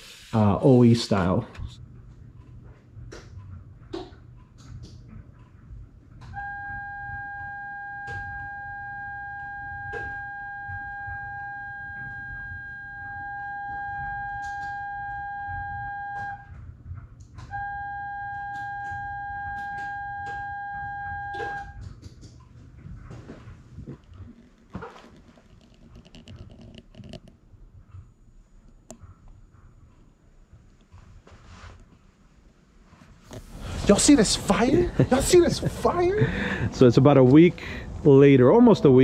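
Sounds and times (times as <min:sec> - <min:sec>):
electronic warning buzzer tone: 0:06.4 - 0:16.5, 0:17.4 - 0:21.8.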